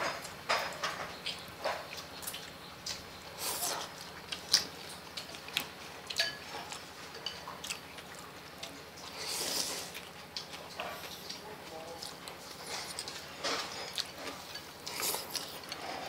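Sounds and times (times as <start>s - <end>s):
chewing: 0.1s - 16.0s
chopsticks clicking on bowls: 6.1s - 7.4s
slurping: 9.1s - 10.2s.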